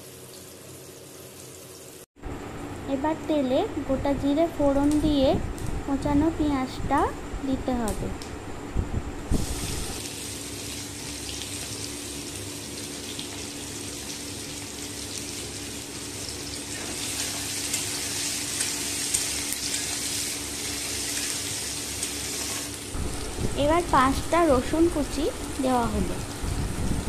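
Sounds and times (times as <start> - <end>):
onions sizzling in oil: 0.0 - 2.1, 9.3 - 27.0.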